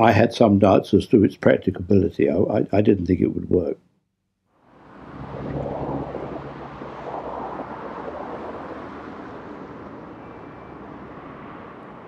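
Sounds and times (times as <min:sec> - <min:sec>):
city traffic rumble and hiss: 0:04.6 - 0:12.0.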